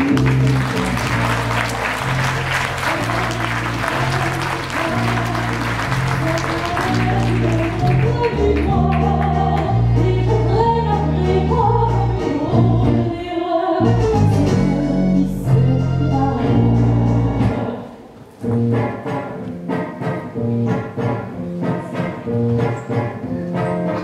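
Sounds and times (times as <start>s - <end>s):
circus band music: 0.0s - 13.0s, 13.8s - 17.7s.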